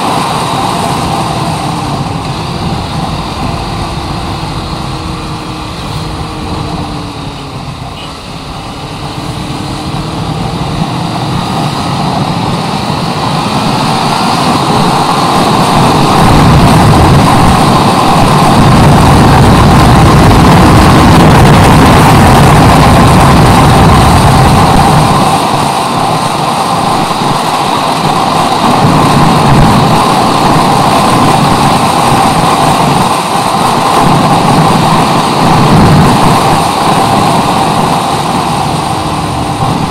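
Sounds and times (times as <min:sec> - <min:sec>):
wind rush on microphone: 0:00.0 - 0:39.9
motorcycle engine running: 0:00.2 - 0:26.6.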